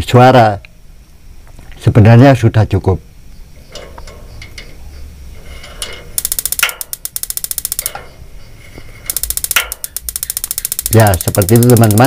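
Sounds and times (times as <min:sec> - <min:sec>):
scattered clicks: 0:06.2 - 0:08.1, 0:09.1 - 0:12.0
spark igniter ticking: 0:06.2 - 0:08.2, 0:09.1 - 0:12.0.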